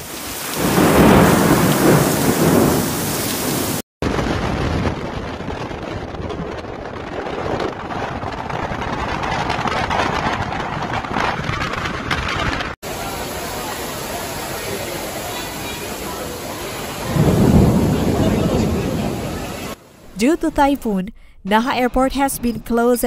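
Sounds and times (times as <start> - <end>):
heavy rain: 0.0 - 11.1, 12.6 - 20.2
gusting wind: 0.0 - 20.2
waves breaking against breakwater: 12.9 - 19.8.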